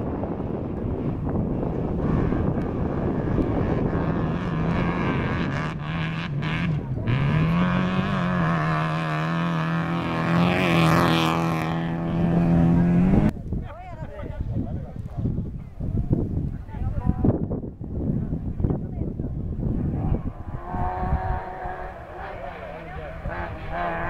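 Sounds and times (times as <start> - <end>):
wind: 0.0 - 24.0
rally car engine revving: 0.8 - 13.3, 19.6 - 24.0.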